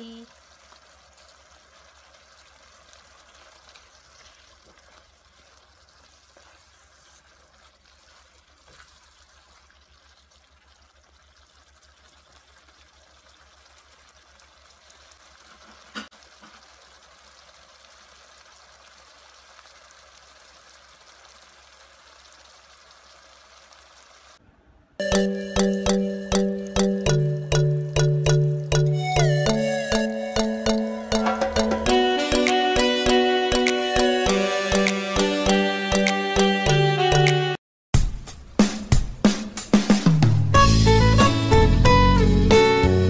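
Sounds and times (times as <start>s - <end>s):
sauce simmering and bubbling: 0.1s - 24.4s.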